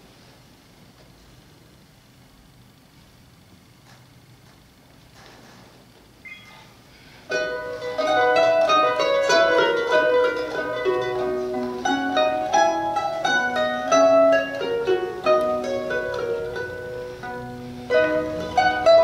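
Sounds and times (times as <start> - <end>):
two mandolins playing: 7.3 - 19.0.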